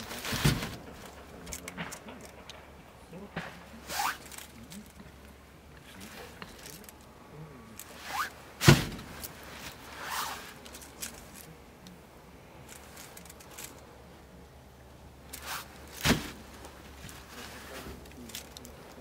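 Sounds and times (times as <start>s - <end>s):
logs knocking against woodpile: 0.0s - 2.7s, 16.0s - 17.2s
light rustling handling noise: 0.0s - 19.0s.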